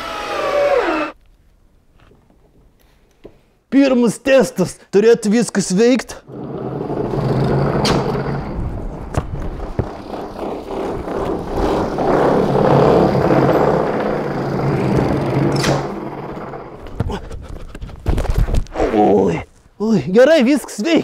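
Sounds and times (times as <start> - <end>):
motor-driven wheels whirring: 0.0 - 1.2.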